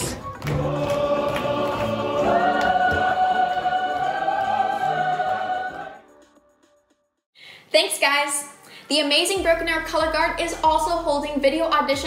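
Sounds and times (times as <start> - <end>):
choir singing a sustained chord: 0.5 - 6.2.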